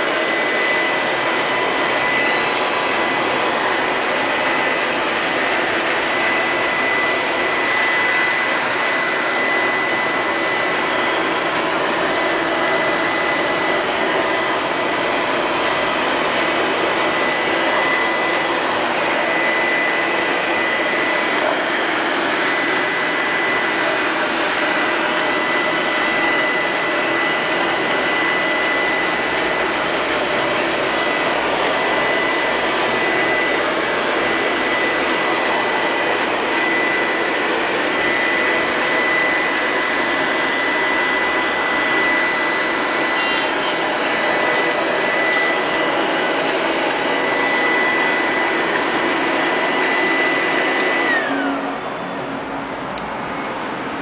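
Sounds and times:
high-pitched whine: 0.0s - 54.0s
robot vacuum cleaner whirring: 0.0s - 54.0s.

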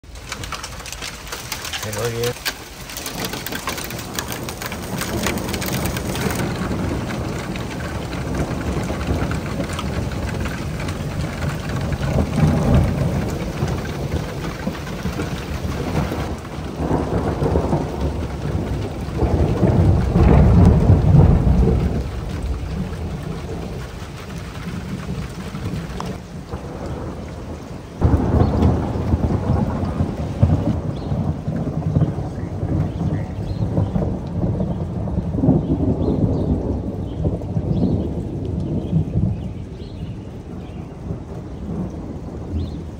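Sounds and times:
hail ticking on plastic chair: 0.0s - 26.2s
steady rain: 0.0s - 42.9s
thunder rumbling: 0.0s - 42.9s.

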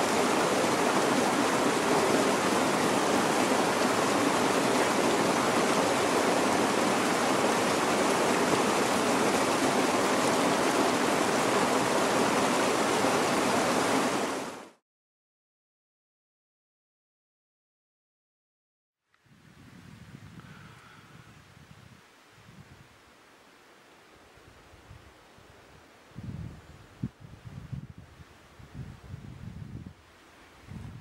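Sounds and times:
flowing water rushing: 0.0s - 14.8s.

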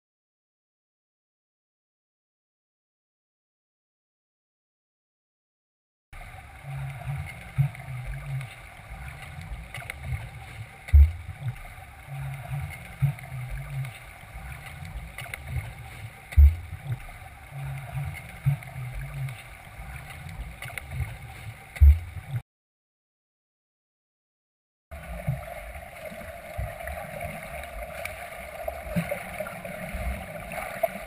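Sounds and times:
muffled underwater churning and bubbling: 6.2s - 22.4s, 24.9s - 31.0s
heavy low thump: 10.9s - 11.6s, 16.3s - 17.0s, 21.8s - 22.4s.

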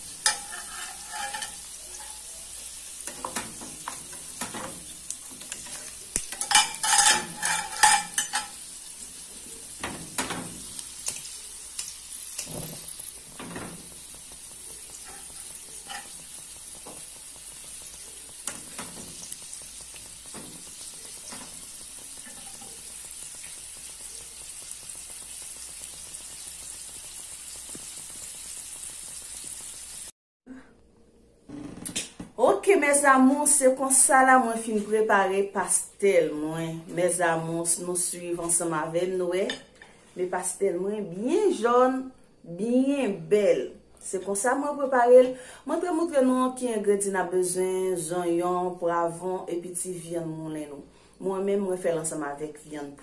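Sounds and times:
metal utensils clinking on pan: 0.0s - 2.4s, 3.0s - 8.7s, 14.9s - 16.2s, 22.2s - 22.8s
food sizzling in frying oil: 0.0s - 30.2s, 44.2s - 53.0s.

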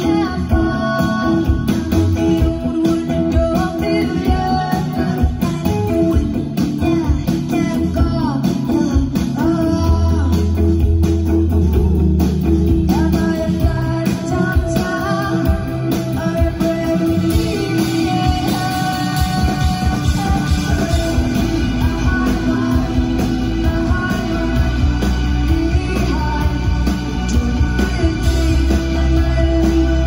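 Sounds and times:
drums: 0.0s - 30.0s
electric guitars: 0.0s - 30.0s
person singing: 0.0s - 30.0s.

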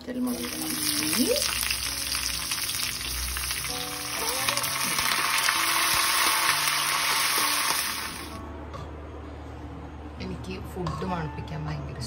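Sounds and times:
onions sizzling in hot oil: 0.1s - 8.4s.

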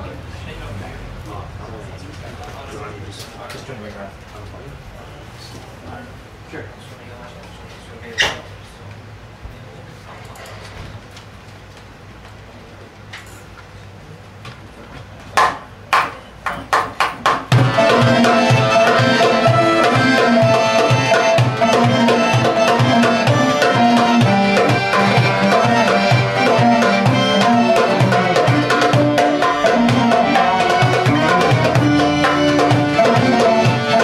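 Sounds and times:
accordion: 17.5s - 34.0s
oud: 17.5s - 34.0s.

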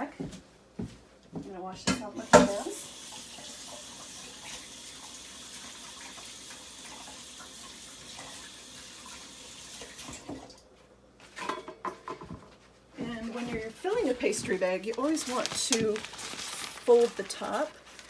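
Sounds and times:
tap water running into sink: 2.3s - 10.6s.

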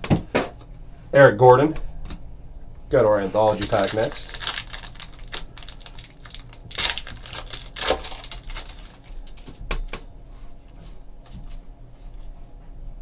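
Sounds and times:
card pack rustling: 3.3s - 9.6s
cards handling noises: 3.3s - 9.6s.

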